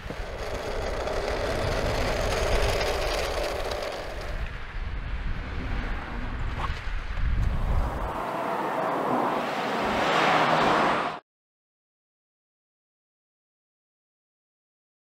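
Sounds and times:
car driving past: 7.9 - 11.2.

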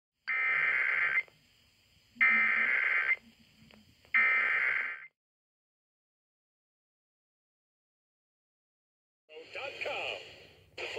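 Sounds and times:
digital data tone bursts: 2.2 - 3.2, 4.2 - 5.1.

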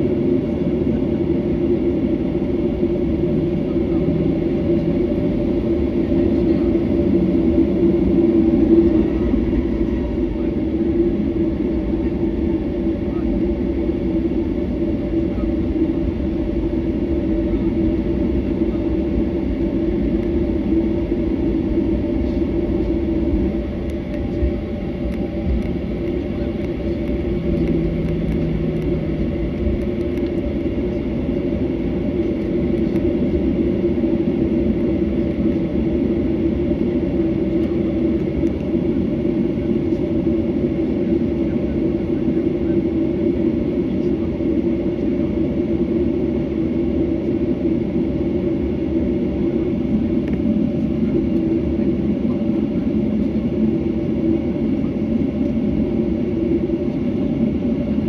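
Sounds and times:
aircraft rolling rumble: 0.0 - 58.0
jet engines humming: 0.0 - 58.0
short low drone: 24.3 - 31.2.

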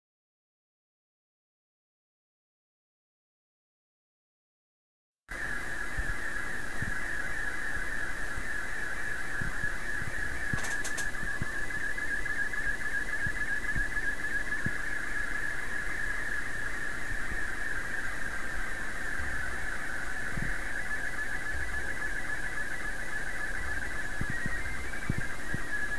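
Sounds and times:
warbling radio picture signal: 10.2 - 11.6.

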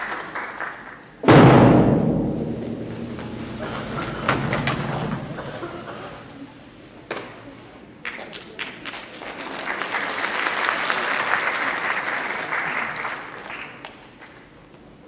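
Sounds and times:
audience applauding: 0.0 - 1.1, 8.0 - 14.5.

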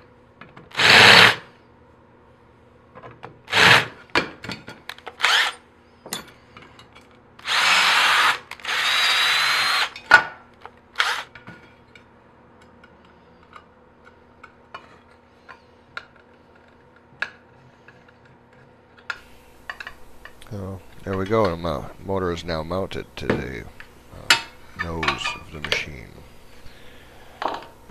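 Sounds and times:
cordless drill whirring: 0.7 - 1.4, 3.5 - 3.9, 5.2 - 5.6, 7.4 - 10.0, 11.0 - 11.3.

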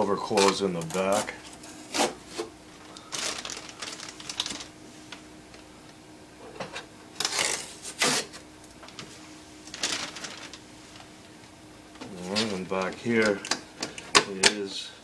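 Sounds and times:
packing tape ripping: 0.4 - 4.7, 7.2 - 8.4, 9.7 - 10.6
clicks and rustles: 9.7 - 14.6.

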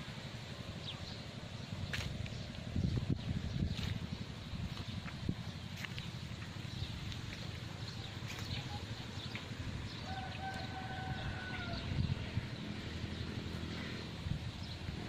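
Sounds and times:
low rumble of handled camera: 1.7 - 9.7
distant rooster crowing: 9.9 - 12.3.

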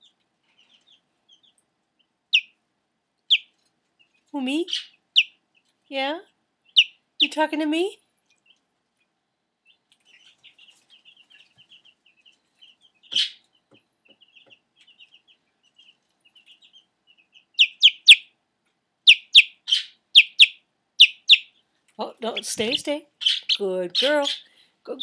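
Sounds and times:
chick peeping: 0.0 - 2.6, 3.2 - 5.8, 6.6 - 7.4, 9.6 - 18.4, 19.0 - 25.0.

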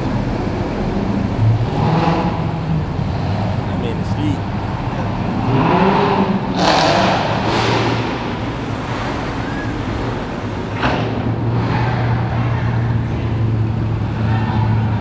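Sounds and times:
car driving past revving: 5.0 - 13.4.

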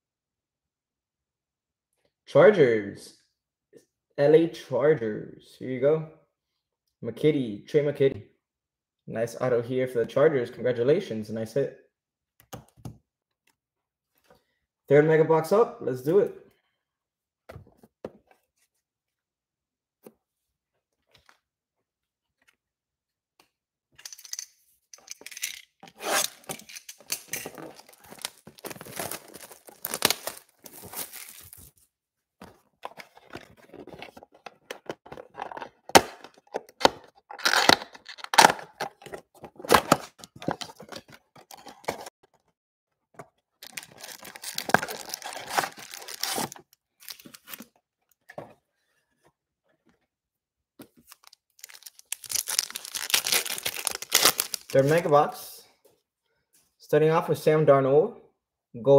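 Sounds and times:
shrink wrap tearing: 26.0 - 31.7, 37.4 - 38.5, 43.6 - 47.6, 51.1 - 55.1
foil packs crinkling: 26.3 - 31.8, 43.6 - 47.6, 51.0 - 55.1.

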